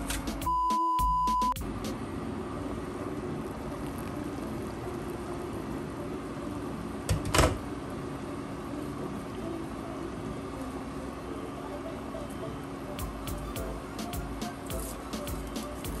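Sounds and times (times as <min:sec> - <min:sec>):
water boiling in a pan: 0:01.6 - 0:11.3.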